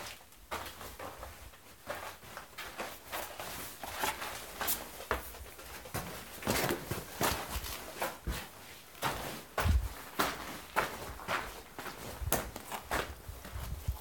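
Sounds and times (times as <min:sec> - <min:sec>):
footsteps crunching on gravel: 0:06.6 - 0:14.0.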